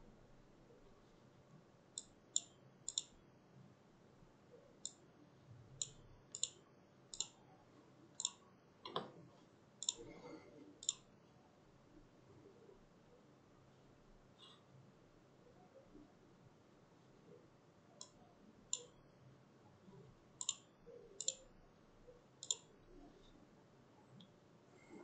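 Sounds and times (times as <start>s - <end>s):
mouse button clicking: 2.0s - 3.1s, 5.8s - 7.4s, 21.2s - 21.4s, 22.4s - 22.7s.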